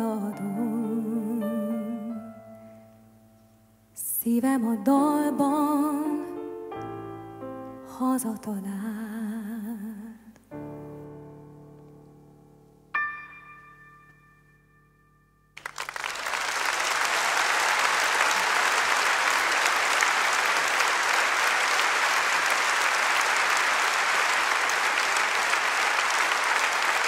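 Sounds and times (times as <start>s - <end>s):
large audience applauding: 15.6s - 27.0s.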